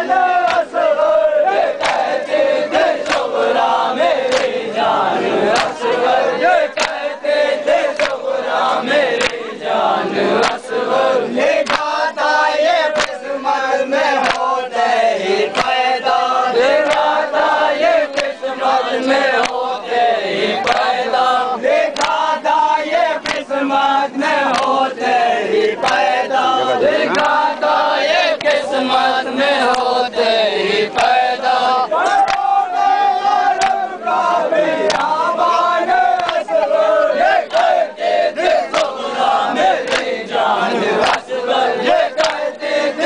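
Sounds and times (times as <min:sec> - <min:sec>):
men chanting together: 0:00.0 - 0:43.0
sharp clacks or slaps: 0:00.4 - 0:00.8, 0:01.8 - 0:02.1, 0:03.0 - 0:03.4, 0:04.2 - 0:04.6, 0:05.5 - 0:06.0, 0:06.7 - 0:07.0, 0:07.9 - 0:08.2, 0:09.1 - 0:09.5, 0:10.4 - 0:10.7, 0:11.6 - 0:12.0, 0:12.8 - 0:13.2, 0:14.2 - 0:14.6, 0:15.5 - 0:15.9, 0:16.8 - 0:17.2, 0:18.1 - 0:18.4, 0:19.4 - 0:19.7, 0:20.6 - 0:21.0, 0:21.9 - 0:22.3, 0:23.2 - 0:23.5, 0:24.4 - 0:24.8, 0:25.8 - 0:26.1, 0:28.3 - 0:28.6, 0:29.6 - 0:29.9, 0:30.9 - 0:31.2, 0:32.1 - 0:32.5, 0:33.6 - 0:33.8, 0:34.8 - 0:35.2, 0:36.2 - 0:36.7, 0:38.6 - 0:39.0, 0:39.8 - 0:40.2, 0:41.0 - 0:41.3, 0:42.2 - 0:42.6.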